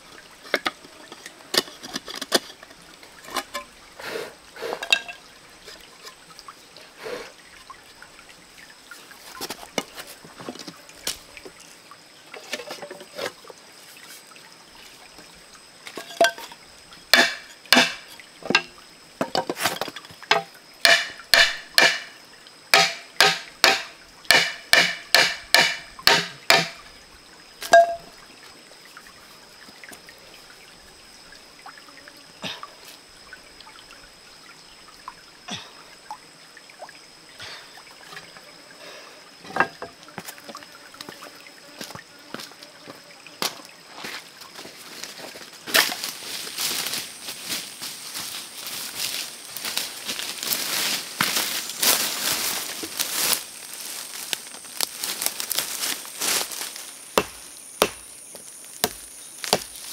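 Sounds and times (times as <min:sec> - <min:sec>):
stream trickling: 0:00.0 - 0:59.9
bamboo knocking on bamboo: 0:17.1 - 0:22.1, 0:22.7 - 0:26.8, 0:27.7 - 0:28.0, 0:57.2 - 0:59.8.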